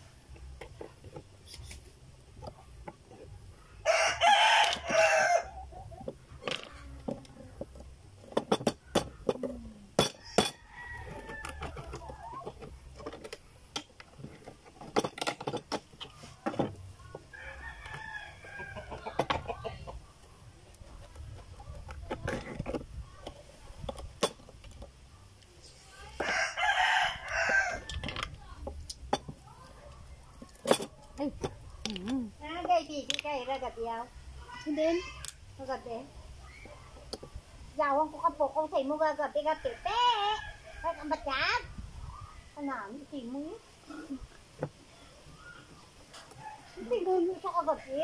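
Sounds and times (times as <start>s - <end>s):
rooster crowing: 3.8s - 5.6s, 10.2s - 12.2s, 17.3s - 19.3s, 26.2s - 28.1s, 46.3s - 47.0s
chicken calls: 17.1s - 20.3s.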